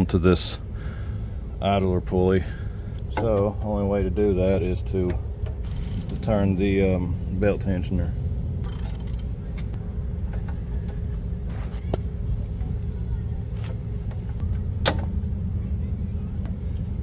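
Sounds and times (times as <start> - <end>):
faint hum: 0.0 - 17.0
low mechanical rumble: 0.0 - 17.0
sharp metal clicks: 5.4 - 6.3, 8.6 - 9.4.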